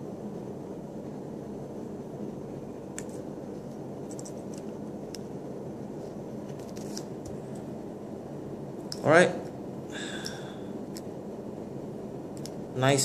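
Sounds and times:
room noise: 0.0s - 13.0s.

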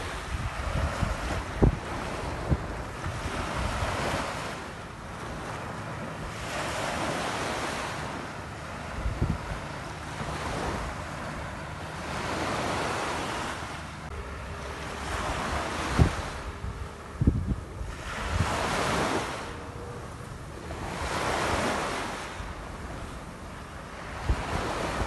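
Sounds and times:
ocean surf washing ashore: 0.0s - 25.0s
wind rumbling on microphone: 0.0s - 25.0s.

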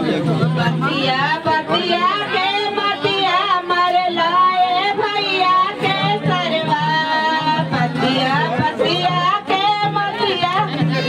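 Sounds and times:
instrumental accompaniment: 0.0s - 11.0s.

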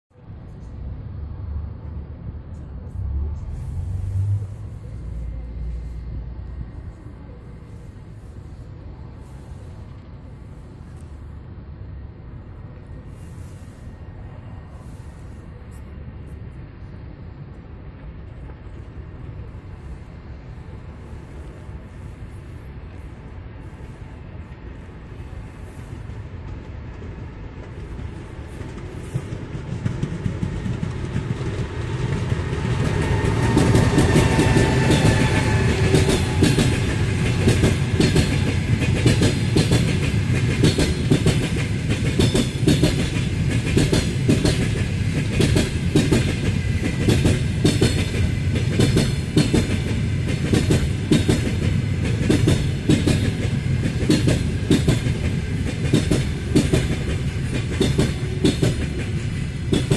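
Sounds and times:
electric locomotive whine: 0.1s - 59.9s
train wheels clacking on rail joints: 25.6s - 59.9s.

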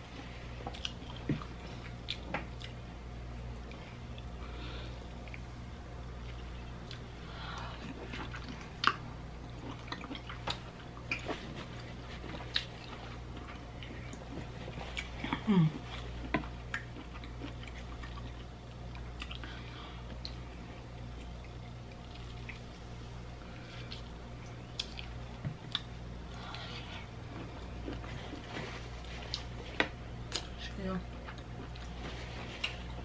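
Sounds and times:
low background hum: 0.0s - 33.0s
person chewing food: 0.0s - 33.0s
wet clicks and lip smacks: 23.9s - 25.9s.

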